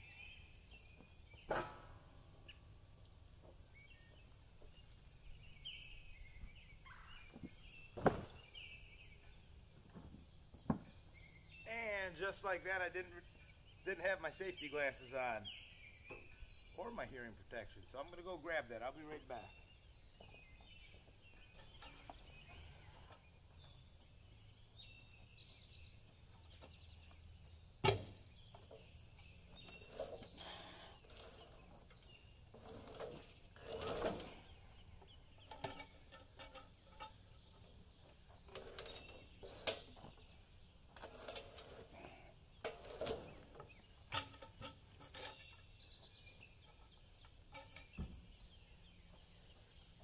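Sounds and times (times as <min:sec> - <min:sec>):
small birds chirping: 0:00.0 - 0:01.6, 0:02.3 - 0:50.0
cant hook scraping a log: 0:29.6 - 0:34.6.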